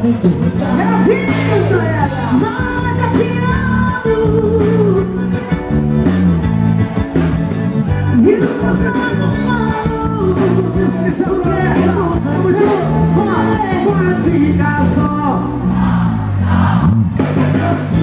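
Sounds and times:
accordion melody: 0.0 - 16.3
live band playing: 0.0 - 18.0
woman singing: 0.6 - 5.2, 8.2 - 14.0.

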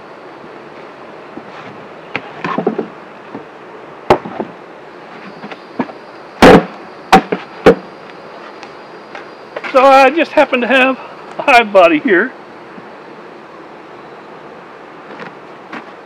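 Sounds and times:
honeybees humming: 0.0 - 16.0
wooden boxes knocking: 2.4 - 3.5, 4.1 - 4.6, 5.4 - 7.9.

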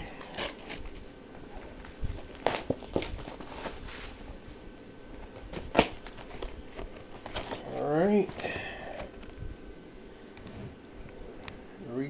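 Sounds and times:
box crinkles and clicks: 0.0 - 3.8, 5.2 - 9.4.

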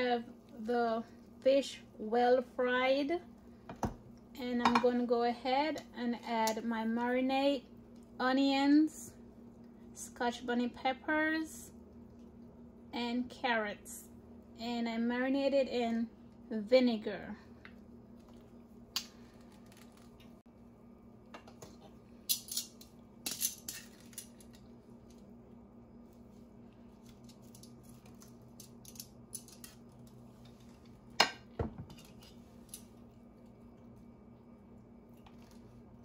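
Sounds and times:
faint steady hum: 0.0 - 36.0.

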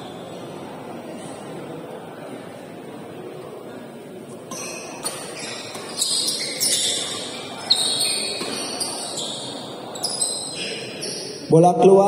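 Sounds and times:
low hall hum: 0.0 - 12.0
shoes squeaking on court: 4.4 - 11.5
racket hitting shuttlecock: 8.3 - 8.8.

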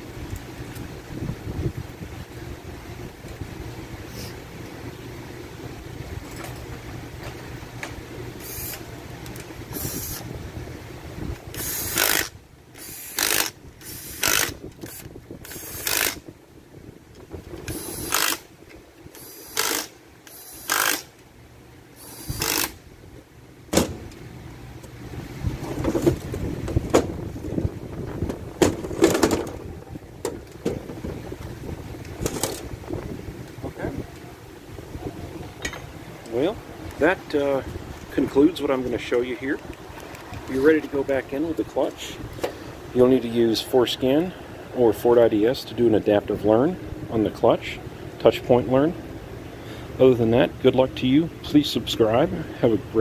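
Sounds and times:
metal clunks and scraping: 6.2 - 8.0, 25.5 - 31.1
cordless power driver bursts: 8.4 - 8.9, 9.7 - 10.3, 11.5 - 16.2, 17.6 - 18.5, 19.1 - 21.2, 22.0 - 22.8.

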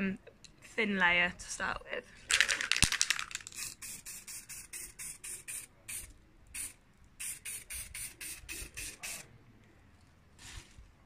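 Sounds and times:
aerosol spray can hissing: 3.1 - 9.2.

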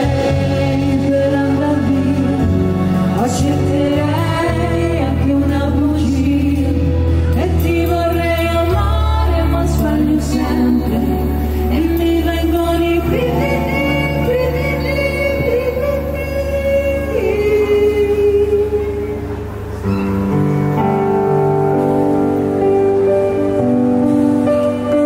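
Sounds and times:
women singing pop ballad: 0.0 - 19.3
live band playing: 0.0 - 25.0.

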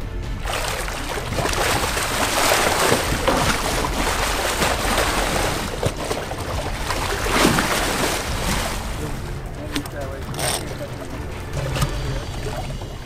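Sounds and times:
shark splashing in water: 0.4 - 10.0.

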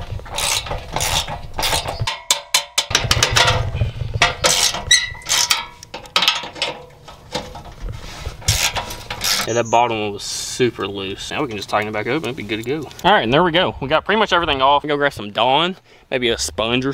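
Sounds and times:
wrench metallic clicks and scrapes: 0.1 - 9.5.

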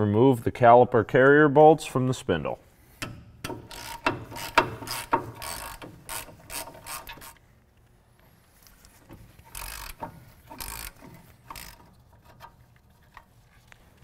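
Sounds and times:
hand ratchet clicking: 3.0 - 7.4, 9.1 - 13.3.

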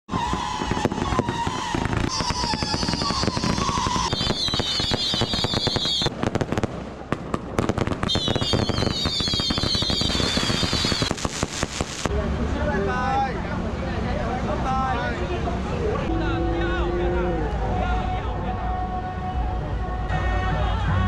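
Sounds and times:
shrill wavering firework whistles: 0.1 - 6.2, 8.0 - 12.1
fireworks crackling pops and bangs: 0.1 - 12.2.

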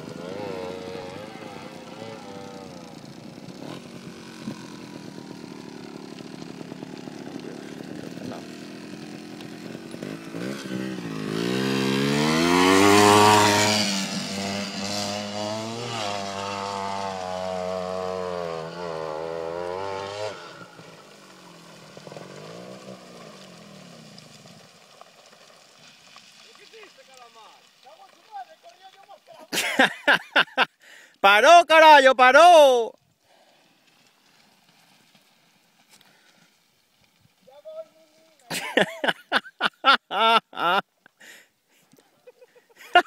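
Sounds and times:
motorcycle engine revving: 0.0 - 24.7.

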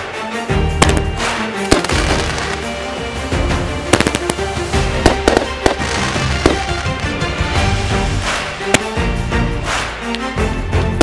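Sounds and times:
background music: 0.0 - 11.0
fireworks bangs: 0.8 - 2.7, 3.9 - 7.2.

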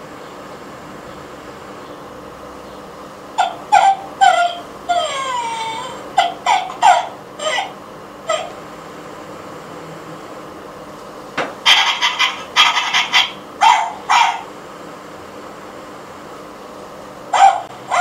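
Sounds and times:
recorded small dog barks: 3.4 - 4.7, 6.2 - 7.7, 11.7 - 14.5, 17.3 - 18.0
recorded dog yelps: 3.4 - 8.6, 11.6 - 14.5, 17.3 - 18.0.

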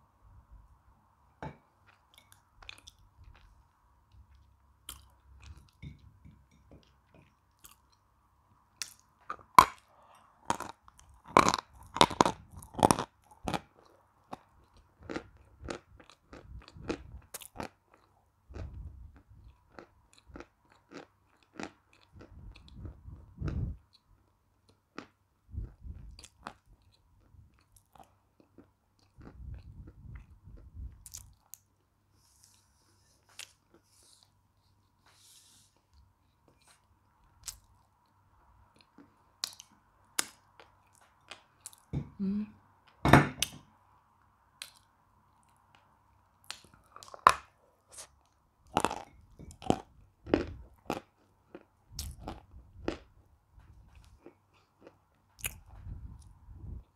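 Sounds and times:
chalk crunching and chewing: 8.8 - 24.1.

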